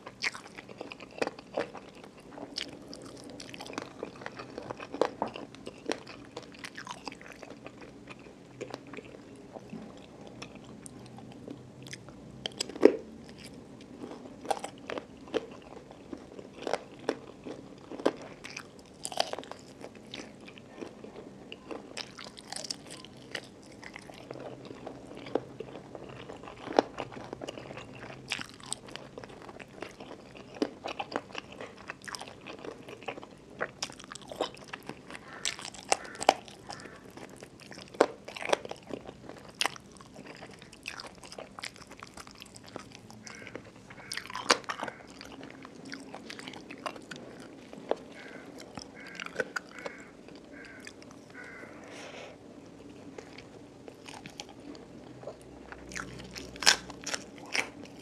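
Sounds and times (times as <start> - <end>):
person chewing with crunches: 0.0 - 58.0.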